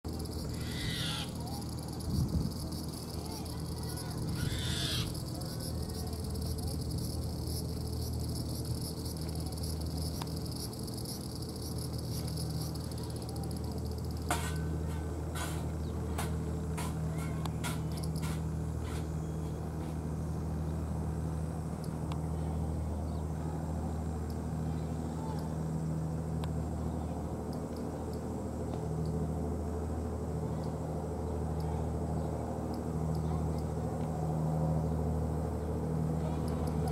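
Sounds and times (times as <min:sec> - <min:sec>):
cicadas droning: 0:00.0 - 0:36.9
low steady hum: 0:00.0 - 0:36.9
faint high ticks: 0:05.1 - 0:14.4.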